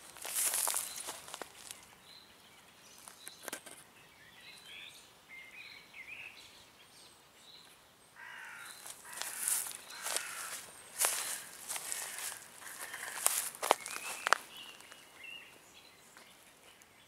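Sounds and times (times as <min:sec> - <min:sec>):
leaves rustling: 0:00.0 - 0:01.9, 0:08.2 - 0:16.8
birds chirping: 0:00.0 - 0:17.0.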